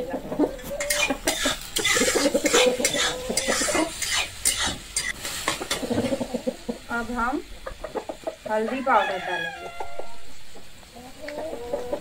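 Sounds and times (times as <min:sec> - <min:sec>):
vegetables frying in oil: 0:00.2 - 0:12.0
spoon scraping a pan: 0:00.6 - 0:06.3.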